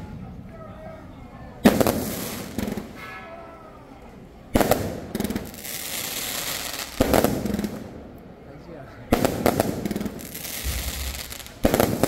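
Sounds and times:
firework shells bursting: 1.6 - 3.0, 4.6 - 8.0, 9.1 - 12.0
firework crackle and hiss: 1.6 - 3.2, 4.6 - 8.0, 9.1 - 12.0.

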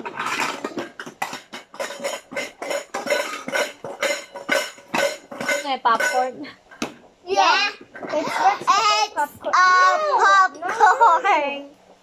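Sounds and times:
metal toy pots clinking: 0.0 - 6.4
child's voice: 7.2 - 11.3.

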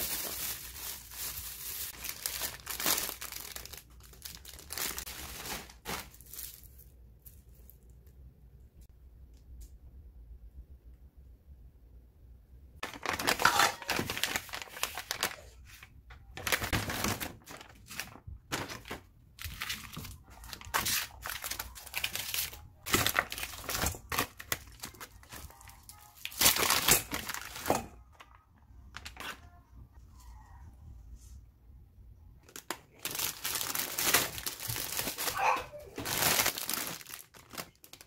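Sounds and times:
plastic packaging crinkling: 0.0 - 7.7, 12.8 - 29.5, 32.4 - 38.0.

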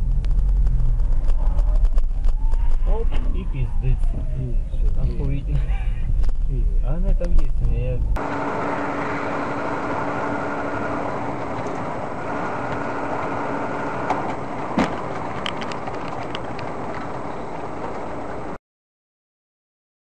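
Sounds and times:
car engine and road noise: 0.0 - 18.6
steady hum: 2.9 - 18.6.

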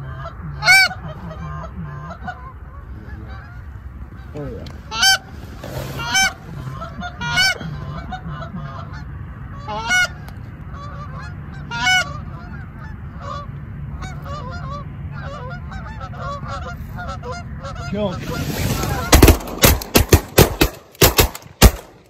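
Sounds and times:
flock of geese honking: 0.0 - 19.5
loud close goose honks: 0.0 - 19.7.

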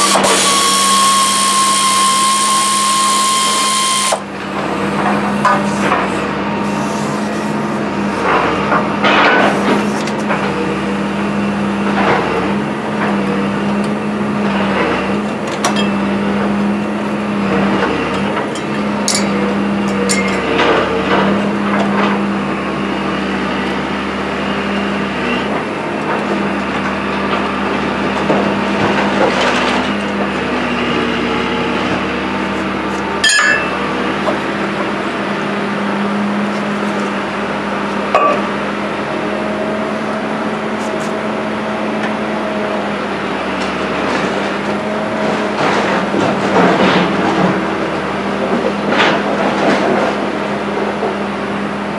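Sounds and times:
steady machine hum: 0.0 - 51.9
hand tools knocking on metal: 33.2 - 33.8.

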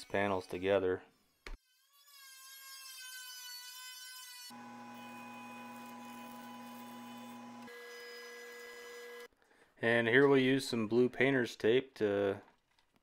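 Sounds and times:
jointer motor whine: 4.5 - 9.3
thickness planer motor whine: 4.5 - 9.3.

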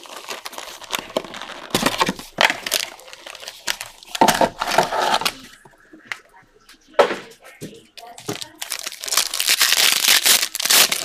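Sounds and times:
cardboard box tearing: 0.0 - 5.4, 9.1 - 11.0
foil packs crinkling: 0.0 - 5.8, 8.0 - 11.0.

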